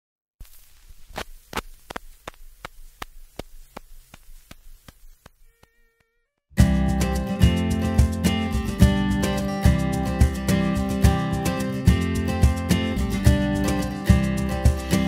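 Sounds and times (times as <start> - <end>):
regular sharp ticking: 0.8 - 6.1
strummed acoustic guitar music: 6.6 - 15.0.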